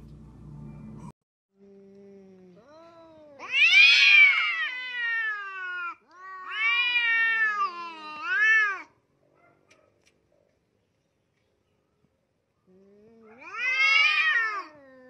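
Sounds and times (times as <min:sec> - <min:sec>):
cat low moan: 0:01.6 - 0:08.8, 0:12.7 - 0:15.0
cats yowling: 0:02.7 - 0:08.9, 0:13.1 - 0:15.0.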